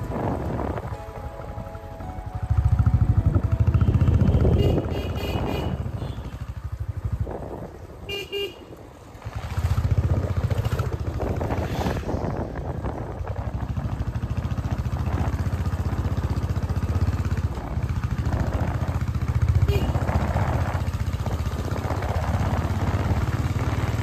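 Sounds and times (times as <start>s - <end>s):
motorcycle engine running: 0.0s - 24.0s
horn toots: 2.0s - 6.6s, 8.0s - 8.7s, 19.6s - 20.4s.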